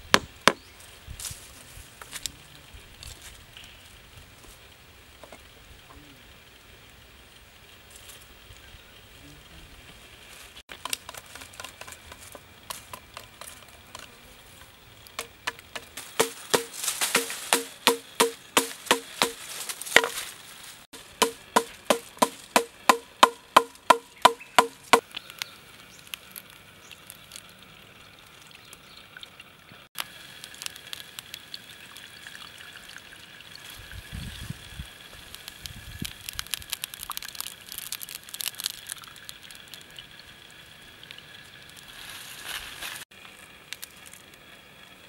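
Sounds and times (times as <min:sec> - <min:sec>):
rustling and scraping bamboo: 0:07.6 - 0:08.5, 0:09.8 - 0:26.7, 0:33.6 - 0:39.9, 0:41.3 - 0:44.8
stick knocking knife into bamboo: 0:15.2 - 0:19.4, 0:20.0 - 0:20.2, 0:21.2 - 0:25.0.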